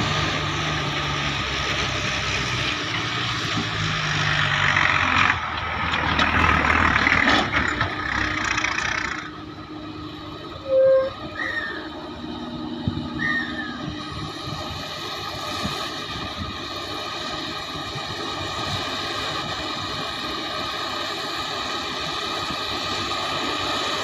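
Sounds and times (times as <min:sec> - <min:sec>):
heavy diesel engines running: 0:00.0 - 0:24.0.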